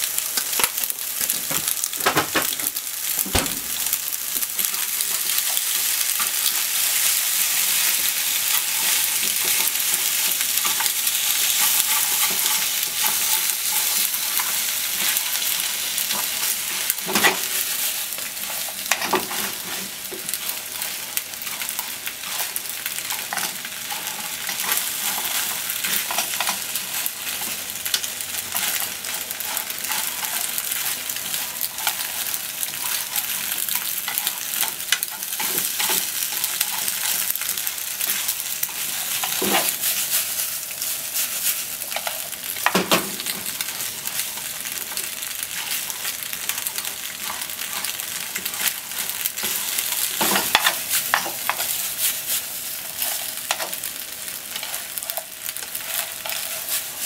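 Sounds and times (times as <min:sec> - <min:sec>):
food sizzling in oil: 0:00.0 - 0:57.0
louder knocks: 0:03.2 - 0:03.8
chopsticks scraping and clicking: 0:21.5 - 0:37.4, 0:41.8 - 0:42.4, 0:46.6 - 0:57.0.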